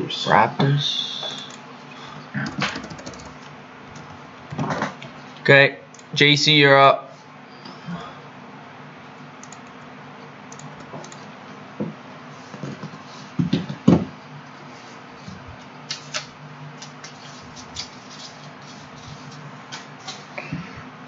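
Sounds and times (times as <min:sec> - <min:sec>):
low electrical hum: 0:00.0 - 0:21.0
computer mouse clicks: 0:09.4 - 0:09.8.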